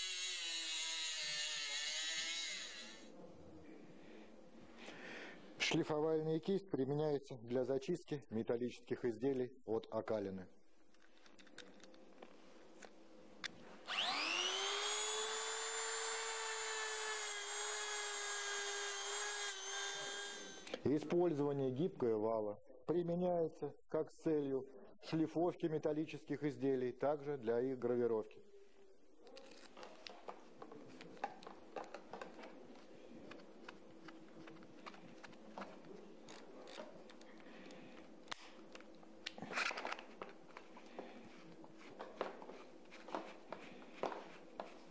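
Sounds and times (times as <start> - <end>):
rotary tool motor whining: 0.0 - 3.1, 13.9 - 20.8.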